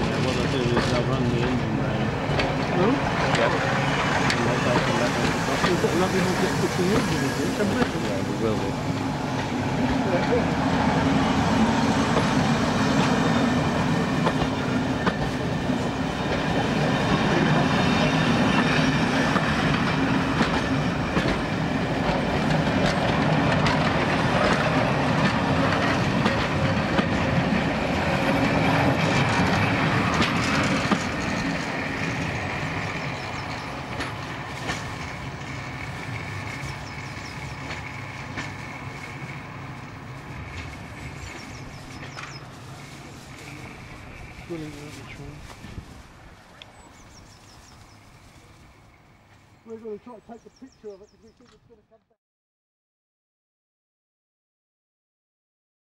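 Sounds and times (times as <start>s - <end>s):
wheels clicking over rail joints: 0.0s - 8.3s, 19.3s - 45.8s
train rolling past: 0.0s - 51.5s.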